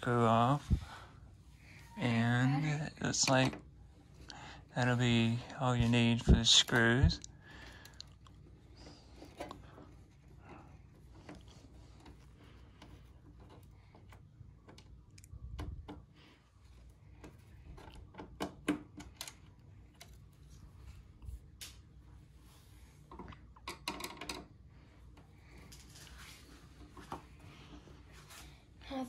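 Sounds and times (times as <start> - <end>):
screwdriver clicks and metal taps: 17.2 - 19.4.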